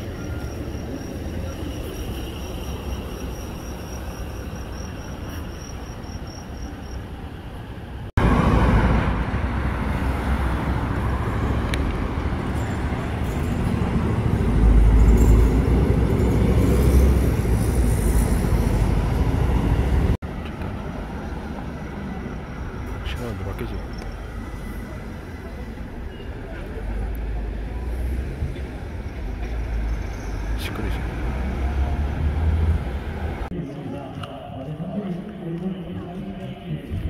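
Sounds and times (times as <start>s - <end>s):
vehicles running past: 0.0s - 37.0s
heavy vehicle rumbling past: 8.1s - 20.2s, 26.4s - 33.5s.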